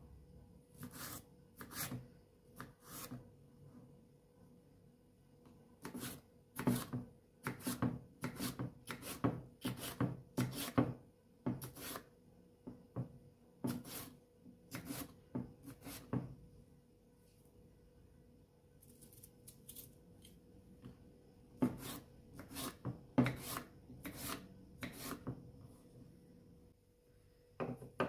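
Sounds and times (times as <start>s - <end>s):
knife slicing on cutting board: 0.8s - 2.0s, 13.7s - 16.1s.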